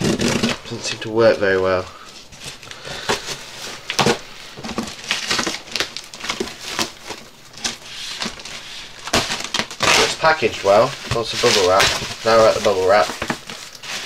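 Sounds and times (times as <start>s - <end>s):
cardboard and tape tearing: 0.0s - 1.6s, 2.4s - 14.0s
bubble wrap crinkling: 0.0s - 14.0s.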